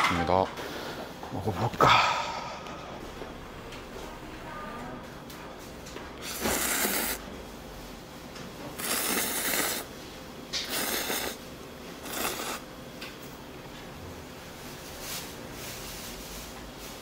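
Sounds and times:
person slurping food: 6.2s - 7.2s, 8.8s - 9.9s, 10.6s - 11.4s, 12.0s - 12.6s.

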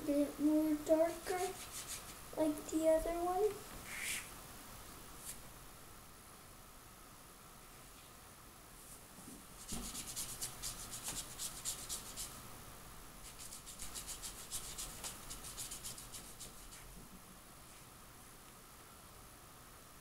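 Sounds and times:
brush scrubbing on paper: 1.2s - 2.2s, 9.6s - 12.3s, 13.2s - 16.9s.

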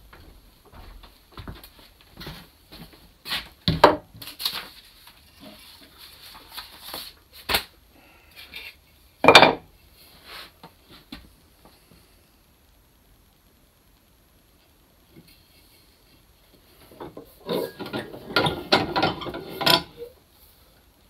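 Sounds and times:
footsteps on wooden floorboards: 0.0s - 3.6s
tools knocking on wooden workbench: 3.7s - 4.1s
paper rustling: 4.2s - 7.7s.

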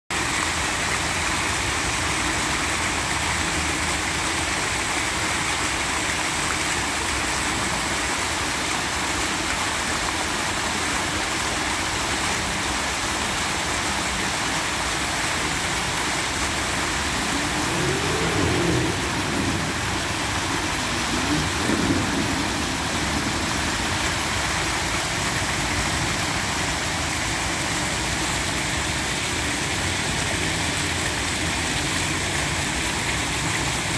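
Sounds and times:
fountain splashing into basin: 0.1s - 33.9s
low rumble: 16.4s - 25.6s.

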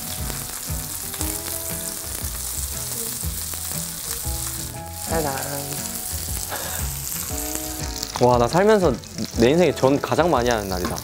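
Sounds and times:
pancakes sizzling in oil: 0.0s - 11.0s.

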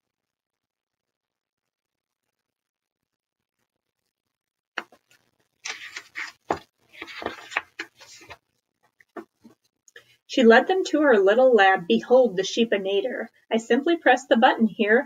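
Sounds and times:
paper page rustling: 4.8s - 8.4s.

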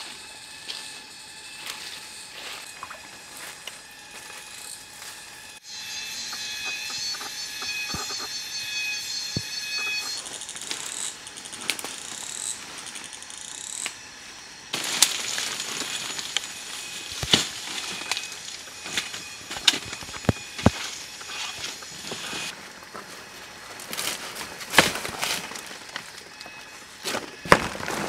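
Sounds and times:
leaves and stalks rustling: 0.0s - 5.4s, 10.2s - 28.0s
high insect or bird tones: 0.0s - 22.6s, 24.2s - 27.8s
gliding whistles: 0.1s - 11.2s, 12.1s - 22.5s.

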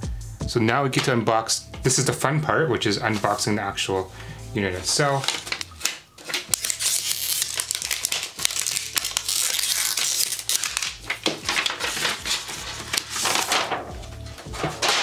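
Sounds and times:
plastic shrink-wrap tearing: 5.1s - 15.0s.

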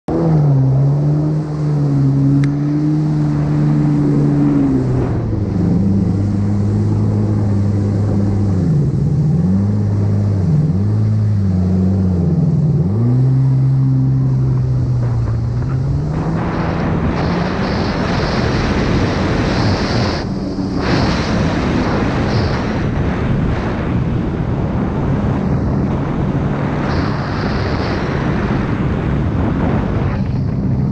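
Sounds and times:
jet ski engine running: 0.1s - 30.9s
water spray and wind rushing: 0.1s - 30.9s.

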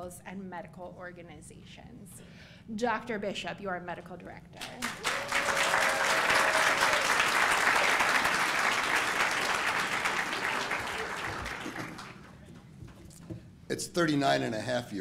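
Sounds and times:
audience applauding: 4.8s - 12.5s.

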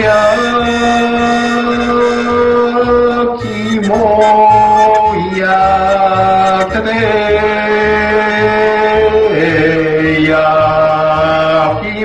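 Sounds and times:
vendor's call jingle: 3.5s - 7.2s.

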